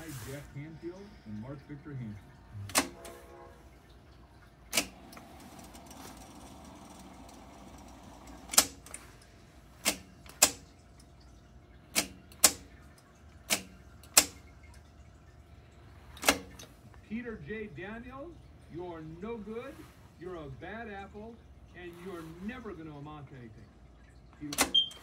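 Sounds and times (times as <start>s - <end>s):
tape winding whir: 4.7s - 9.2s.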